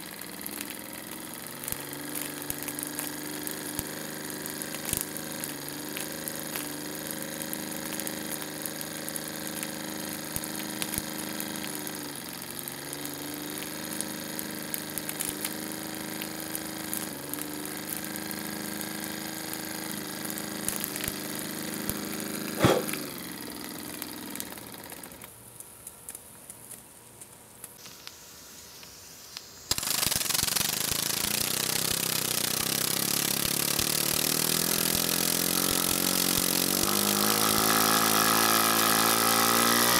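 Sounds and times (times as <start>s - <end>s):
loud steady steam hiss: 27.8s - 38.2s
steam engine mechanical buzz: 29.7s - 39.9s.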